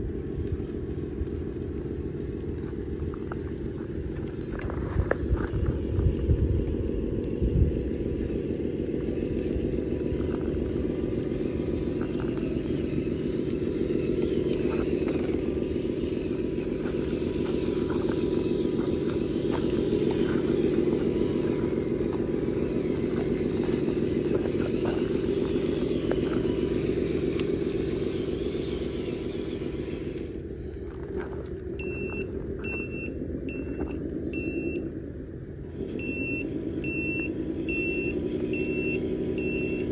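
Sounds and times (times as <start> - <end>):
toy truck engine running: 0.0 - 39.9
reversing beeper: 30.5 - 35.0, 35.9 - 39.9.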